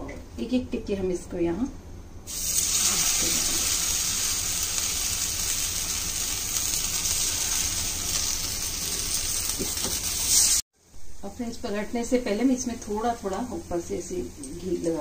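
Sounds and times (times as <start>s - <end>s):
patties sizzling on griddle: 2.3s - 10.6s.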